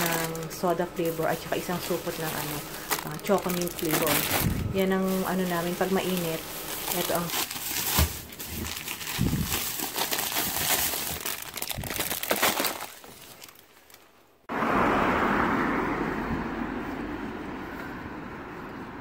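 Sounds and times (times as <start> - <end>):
plastic bags crinkling: 0.0 - 14.2.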